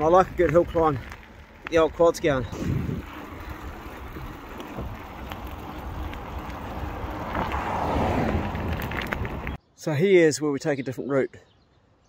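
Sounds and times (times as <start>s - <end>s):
low road rumble: 0.0s - 9.7s
wind rushing over microphone: 2.3s - 9.6s.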